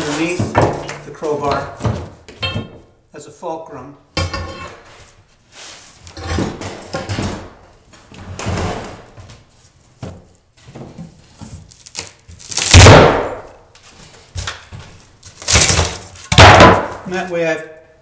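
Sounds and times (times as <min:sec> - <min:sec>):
crowbar knocks and scrapes: 0:00.0 - 0:02.8, 0:04.2 - 0:05.2, 0:06.1 - 0:09.3
board cracking loose: 0:15.4 - 0:16.5.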